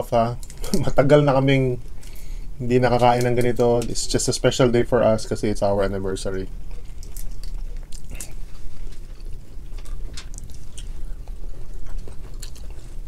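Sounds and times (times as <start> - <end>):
steady low hum: 0.0 - 13.0
lips smacking and chewing: 6.6 - 13.0.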